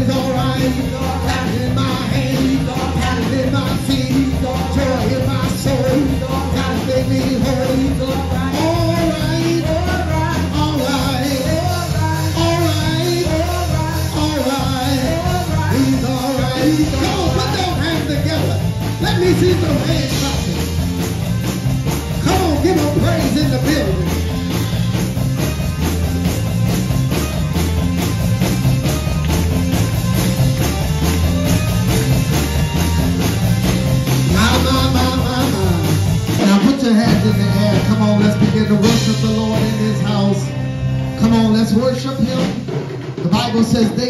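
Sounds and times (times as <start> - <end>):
people singing: 0.0 - 17.4
steady drum beat: 0.0 - 44.0
worship band playing: 0.0 - 44.0.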